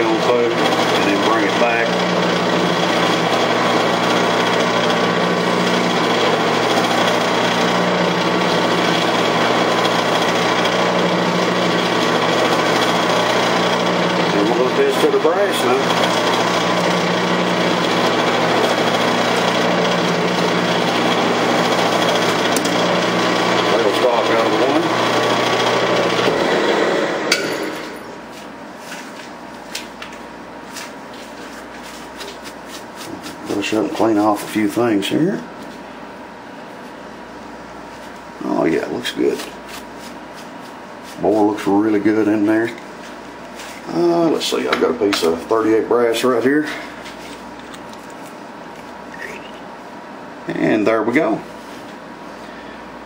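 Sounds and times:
rasping metal cutting: 0:00.0 - 0:28.0
lathe motor hum: 0:00.0 - 0:28.4, 0:31.2 - 0:35.2.

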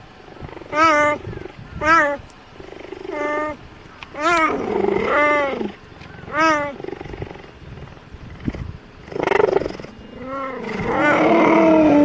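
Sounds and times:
cheetahs meowing: 0:00.4 - 0:02.2, 0:02.8 - 0:07.2, 0:09.1 - 0:12.0.

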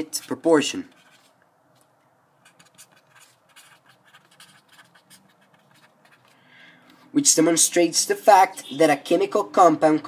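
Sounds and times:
pen scratching on paper: 0:00.0 - 0:06.4.

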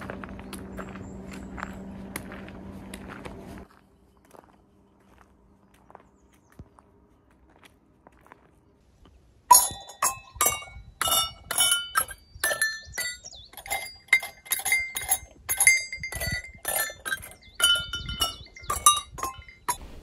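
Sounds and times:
livestock bells clanking: 0:09.5 - 0:20.0.

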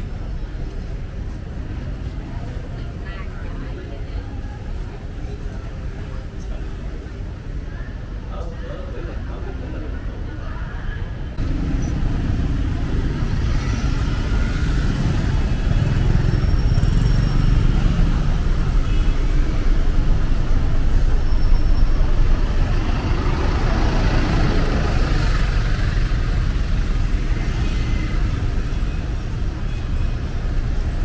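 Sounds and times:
bus passing: 0:00.0 - 0:31.0
motorbikes passing: 0:11.3 - 0:31.0.

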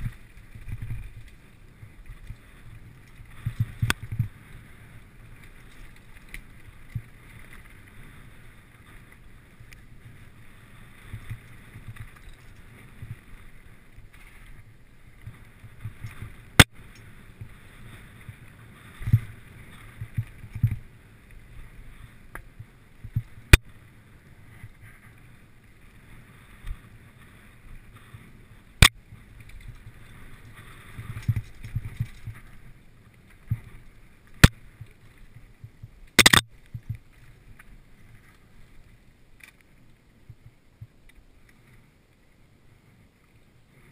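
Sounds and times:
bike clicks: 0:15.3 - 0:17.5, 0:35.6 - 0:37.0.

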